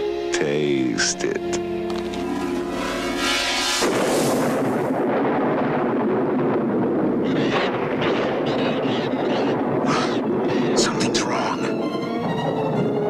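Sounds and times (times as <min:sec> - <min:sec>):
sustained music: 0:00.0 - 0:05.0, 0:10.7 - 0:13.0
loud steady rushing noise: 0:01.9 - 0:06.3.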